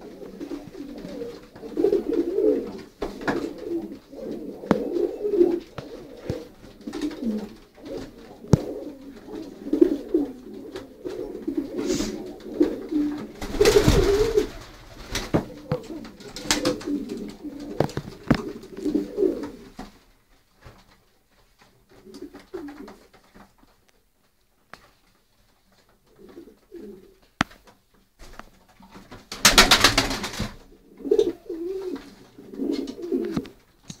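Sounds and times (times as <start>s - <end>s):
pigeons cooing: 0.0s - 19.9s, 22.0s - 23.1s, 26.1s - 27.2s, 30.6s - 33.6s.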